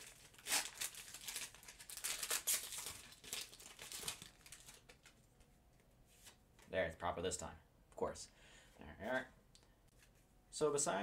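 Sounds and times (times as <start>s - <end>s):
foil wrapper crinkling: 0.0s - 5.3s.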